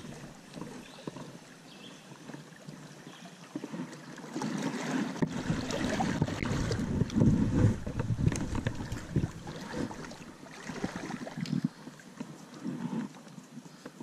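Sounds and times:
water splashing from fish: 0:02.2 - 0:11.8
low rumble: 0:05.3 - 0:10.3.

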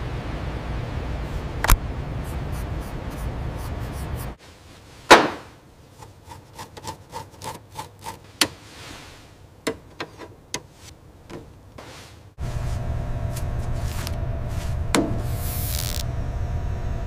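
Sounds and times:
loud knock: 0:05.1 - 0:05.6
steady hiss: 0:08.2 - 0:09.6, 0:10.6 - 0:16.1
hand tools tapping on metal: 0:09.6 - 0:10.7.

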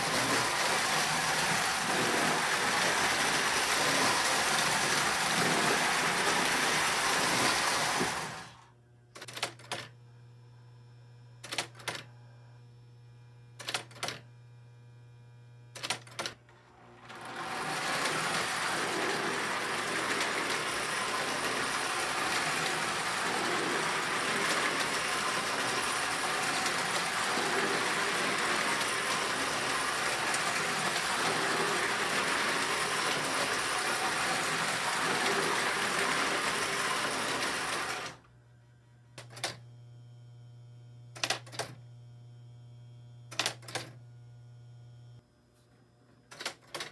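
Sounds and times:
toy train rattling on track: 0:00.0 - 0:08.4, 0:17.1 - 0:38.2
electrical hum: 0:00.0 - 0:46.7
sharp clicks: 0:41.2 - 0:41.8.

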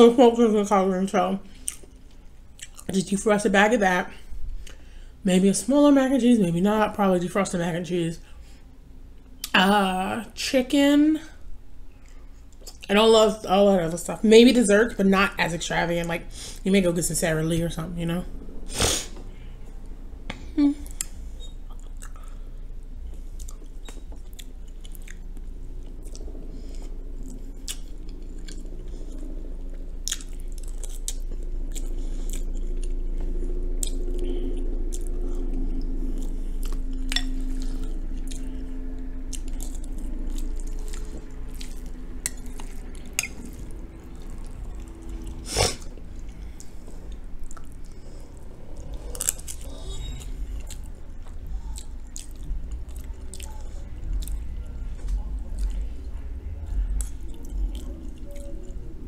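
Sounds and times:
low steady hum: 0:00.0 - 0:59.0
wet chewing and mouth clicks: 0:01.5 - 0:02.9, 0:20.8 - 0:59.0.

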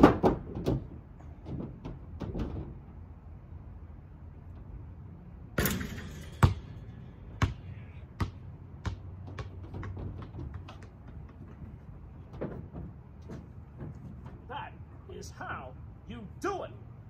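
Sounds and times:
basketball net swish: 0:05.6 - 0:07.6
basketball bouncing on concrete: 0:05.6 - 0:11.7.

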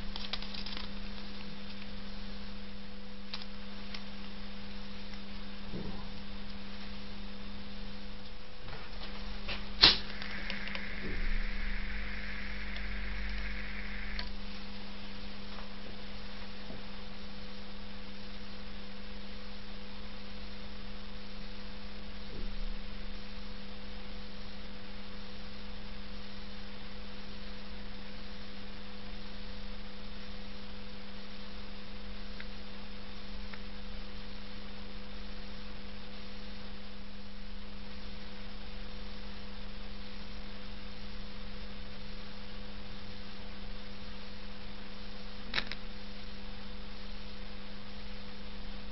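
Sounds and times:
electrical hum: 0:00.0 - 0:48.9
lighter gas hissing: 0:09.4 - 0:14.9
lighter click: 0:09.8 - 0:10.9.

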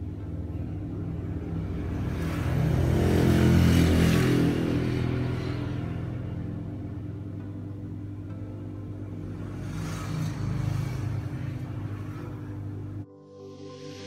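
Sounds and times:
vehicle passing: 0:00.0 - 0:13.0
hot air station hum: 0:00.0 - 0:13.1.

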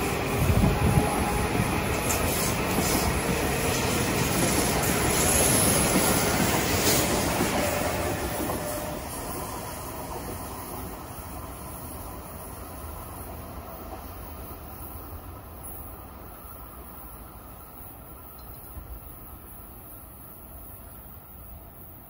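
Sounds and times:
train wheels rumbling and clattering: 0:00.0 - 0:16.4.

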